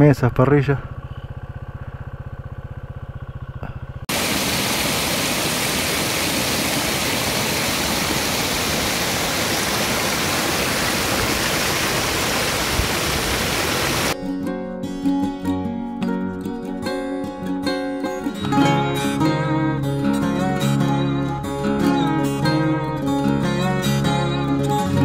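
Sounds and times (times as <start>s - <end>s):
motorcycle engine idling: 0.3s - 4.1s
river water rushing: 4.1s - 14.2s.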